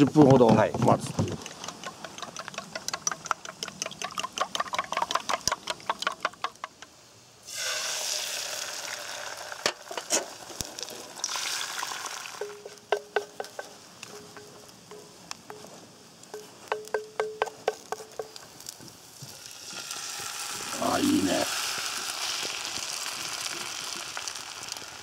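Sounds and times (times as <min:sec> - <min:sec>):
chopsticks beating eggs in metal bowl: 0:01.4 - 0:06.2
egg sizzling in frying pan: 0:01.4 - 0:25.0.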